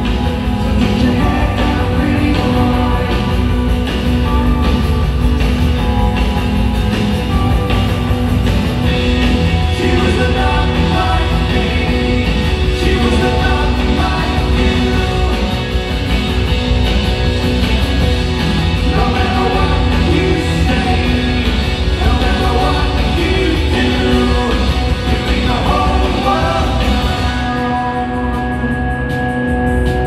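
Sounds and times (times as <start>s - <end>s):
lead vocal singing: 0.0s - 4.8s, 8.8s - 16.6s, 18.3s - 28.6s
live rock band playing: 0.0s - 30.0s.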